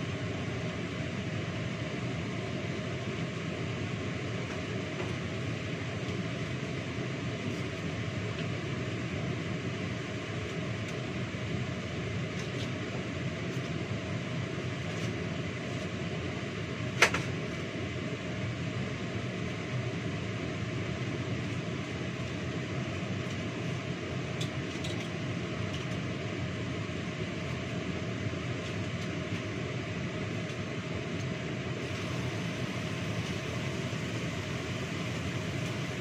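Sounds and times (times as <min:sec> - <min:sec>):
fan whirring: 0:00.0 - 0:36.0.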